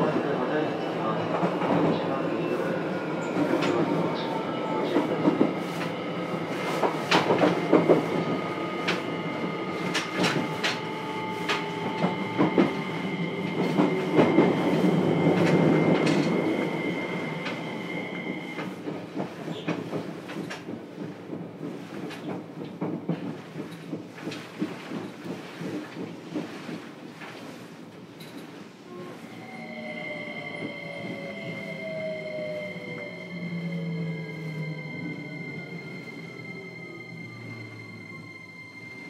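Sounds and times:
rumble of train wheels: 0.0 - 39.0
train inverter whine: 1.9 - 22.4, 23.2 - 39.0.

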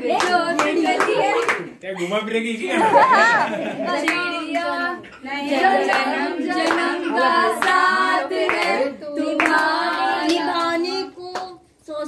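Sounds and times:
group of voices singing: 0.0 - 1.8, 2.8 - 11.5
hands clapping: 0.1 - 1.7, 5.5 - 11.6.

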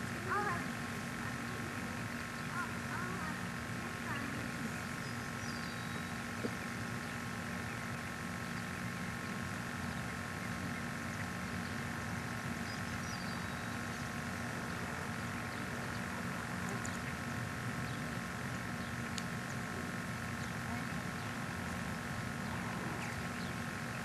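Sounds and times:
camcorder hum and hiss: 0.0 - 24.0
bird chirp: 4.4 - 21.8.

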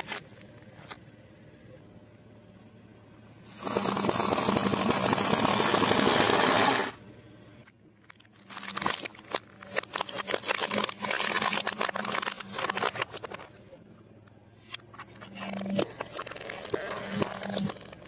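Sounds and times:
plastic toy cracking and snapping: 8.1 - 13.6
tyre crushing crunchy snacks: 8.2 - 13.6, 14.9 - 18.0.

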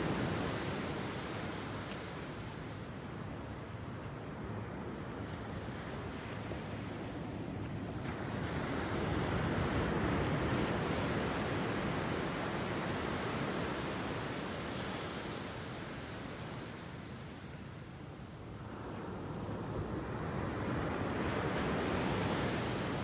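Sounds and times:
ocean surf breaking on beach: 0.0 - 2.8, 5.1 - 17.1.

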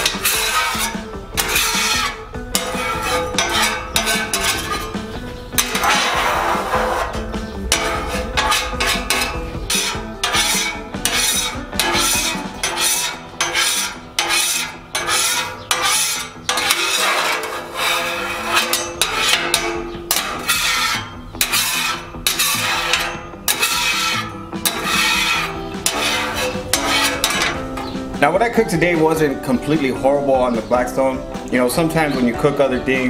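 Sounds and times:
scraper rasping across griddle: 0.0 - 28.1.

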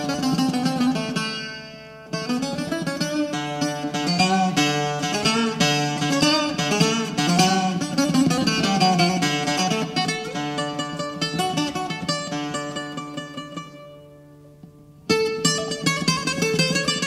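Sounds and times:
plucked string instrumental music: 0.0 - 17.0.

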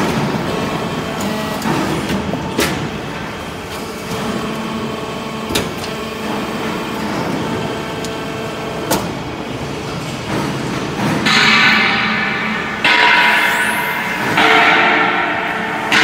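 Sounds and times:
hydraulic press humming: 0.0 - 16.0
sharp mechanical knocks: 10.2 - 16.0.

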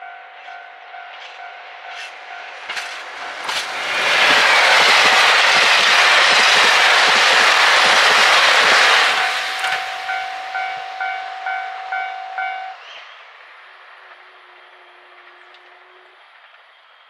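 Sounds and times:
passing diesel train rushing: 0.0 - 17.0
level crossing alarm dinging: 9.2 - 12.8.

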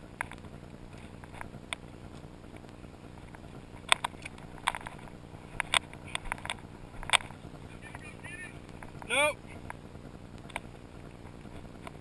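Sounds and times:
low steady rumble: 0.0 - 12.0
sharp clicks and crackles: 0.1 - 12.0.

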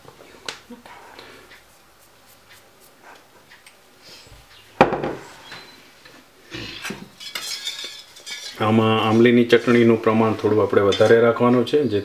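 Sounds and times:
bowls clattering: 6.8 - 8.8.

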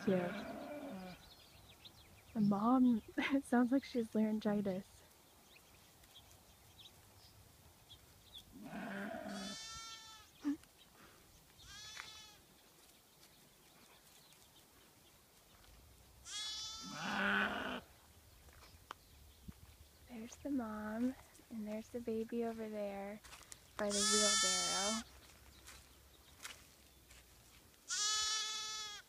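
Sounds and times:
lamb bleating: 0.0 - 1.2, 8.6 - 10.3, 11.7 - 12.4, 16.2 - 17.8, 23.9 - 25.0, 27.9 - 29.0
sheep hoarse baa: 0.0 - 1.2, 8.6 - 10.2, 16.3 - 17.9.

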